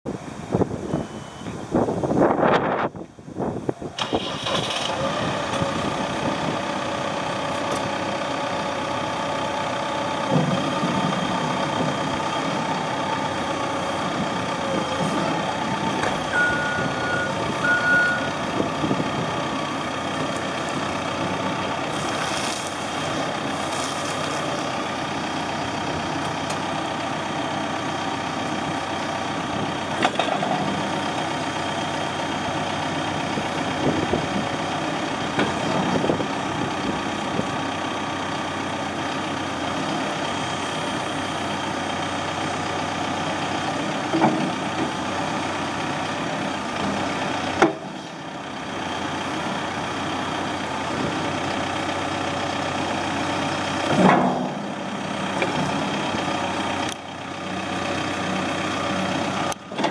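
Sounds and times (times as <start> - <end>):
diesel engine running: 0.1 - 59.9
short beeps: 0.9 - 1.6, 16.3 - 18.3
metal clunks: 30.0 - 30.6, 53.9 - 54.7.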